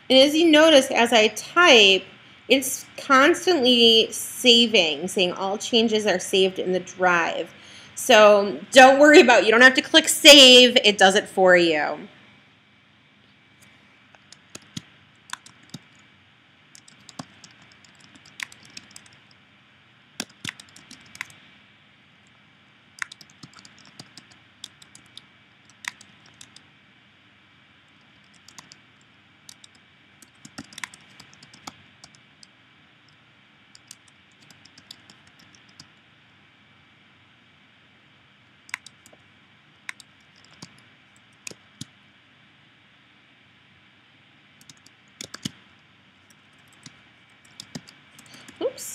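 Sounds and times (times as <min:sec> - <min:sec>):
keyboard typing clicks: 0:14.2 - 0:16.0, 0:16.7 - 0:19.4, 0:20.2 - 0:21.4, 0:23.0 - 0:26.7, 0:28.0 - 0:32.5, 0:33.7 - 0:35.9, 0:38.7 - 0:39.2, 0:39.8 - 0:41.9, 0:44.6 - 0:45.6, 0:46.3 - 0:48.6.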